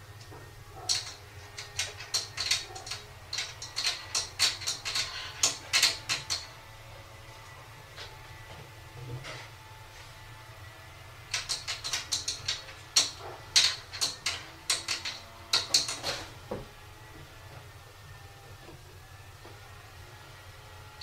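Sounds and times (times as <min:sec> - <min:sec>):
cupboard doors rattling and clicking: 0:00.3 - 0:06.6, 0:11.3 - 0:16.7.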